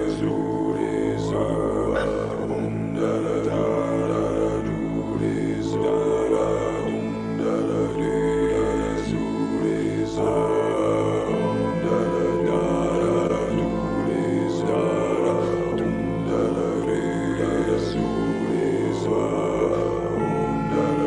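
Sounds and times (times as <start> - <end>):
low drone: 0.0 - 21.0
singing bowls ringing: 10.4 - 21.0.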